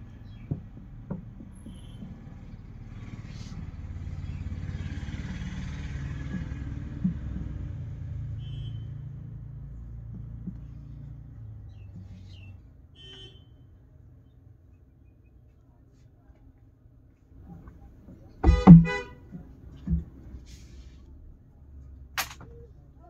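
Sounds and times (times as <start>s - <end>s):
vehicle engine rumble passing: 1.6s - 12.3s.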